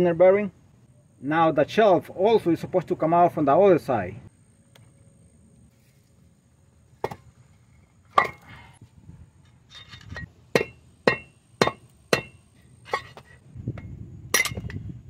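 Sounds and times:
hammer striking metal drift: 0:10.5 - 0:13.3.

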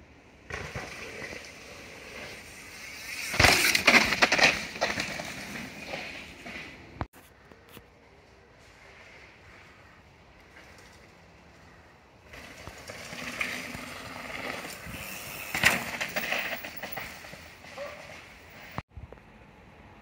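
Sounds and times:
bike tyres rolling over dirt: 0:00.2 - 0:07.7, 0:08.6 - 0:19.2
bike rattling: 0:00.4 - 0:07.0, 0:10.4 - 0:18.8.

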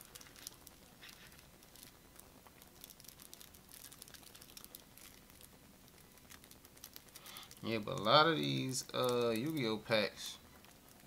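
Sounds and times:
trading cards clicking and rustling: 0:06.4 - 0:10.0.

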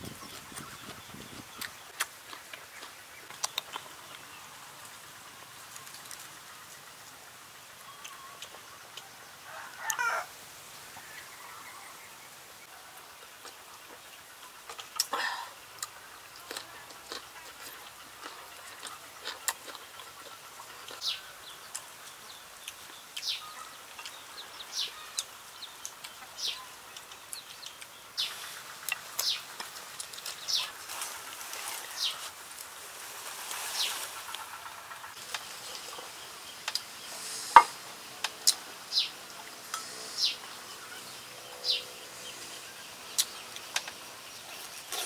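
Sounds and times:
birds chirping: 0:00.0 - 0:04.6, 0:33.7 - 0:45.0.

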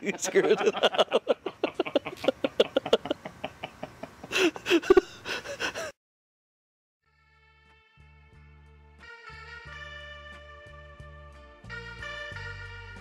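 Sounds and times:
person laughing heartily: 0:00.0 - 0:05.9.

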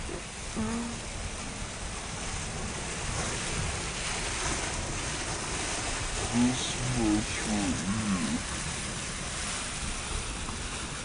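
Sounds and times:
rainwater gushing onto concrete: 0:00.0 - 0:11.0
person speaking: 0:06.3 - 0:08.4.

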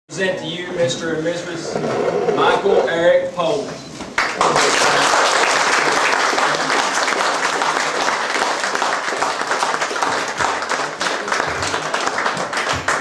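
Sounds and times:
crowd applauding: 0:04.2 - 0:13.0.

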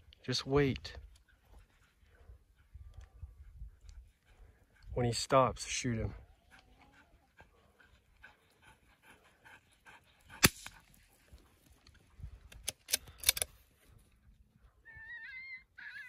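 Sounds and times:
dogs panting: 0:00.0 - 0:12.2
sharp cracks: 0:10.4 - 0:10.8.

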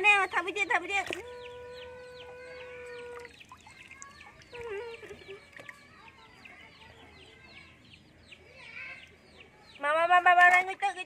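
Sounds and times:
chicks peeping: 0:01.1 - 0:09.8.

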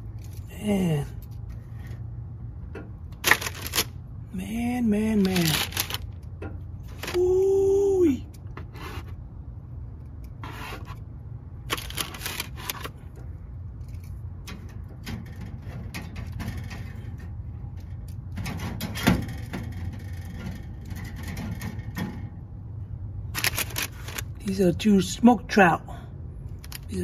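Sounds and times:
steady low hum: 0:00.0 - 0:27.0
rustles and scrapes of metal pan: 0:08.6 - 0:09.3, 0:10.4 - 0:11.1.

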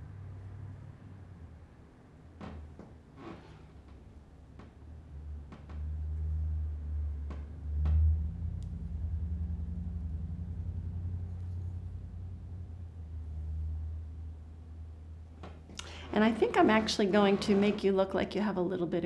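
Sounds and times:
deep fluttering rumble: 0:05.2 - 0:15.2.

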